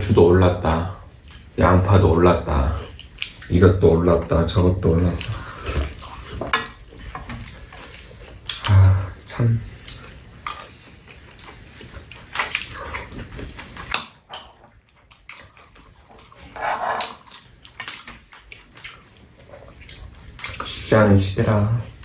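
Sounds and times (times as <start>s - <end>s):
chewing and mouth noises: 0.9s - 1.6s, 2.4s - 3.6s, 4.9s - 20.9s
spoons clicking and scraping bowl: 16.5s - 17.9s.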